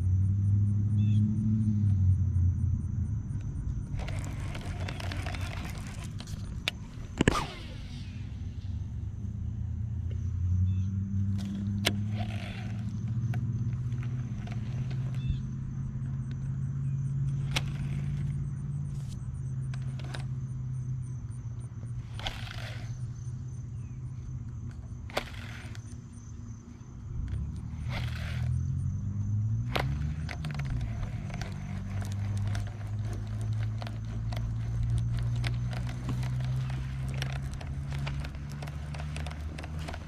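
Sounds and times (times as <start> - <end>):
motor humming: 2.8 - 40.0
short swishes: 7.1 - 8.9
fishing reel clicks: 22.0 - 23.4, 25.0 - 26.2, 27.8 - 28.6.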